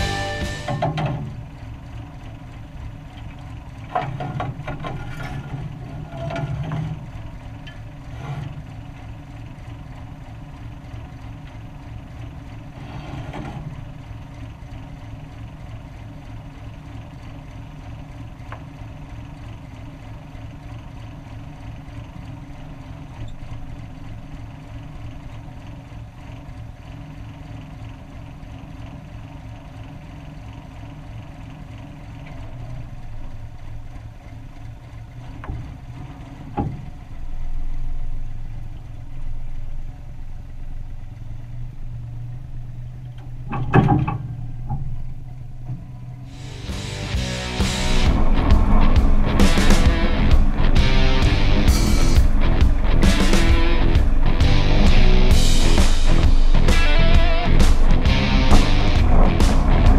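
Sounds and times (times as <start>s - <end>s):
diesel engine running: 0.0s - 59.9s
loud clatter: 46.3s - 59.9s.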